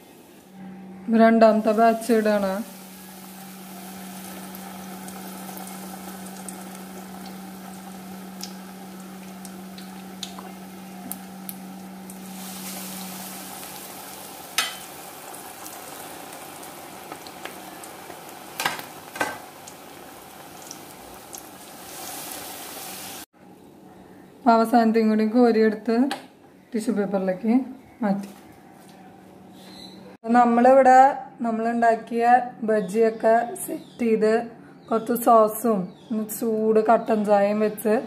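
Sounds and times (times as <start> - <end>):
low steady hum: 0.0 - 18.4
oil bubbling and sizzling: 1.6 - 23.3.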